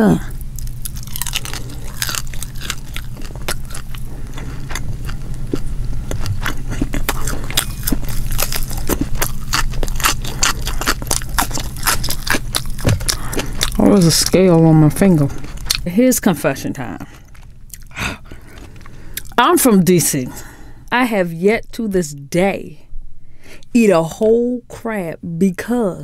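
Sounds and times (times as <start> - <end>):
low hum: 0.0 - 26.0
fish being chewed: 0.4 - 14.4
cucumber bitten and chewed: 0.5 - 14.6.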